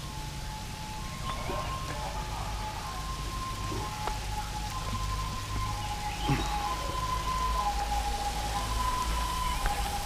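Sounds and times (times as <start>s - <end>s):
waterfall trickling over rock: 2.8s - 10.0s.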